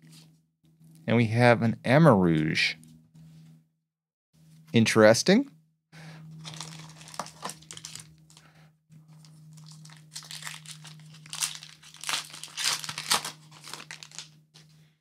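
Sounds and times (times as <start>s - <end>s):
foil wrapper crinkling: 6.4s - 8.5s, 9.1s - 14.7s.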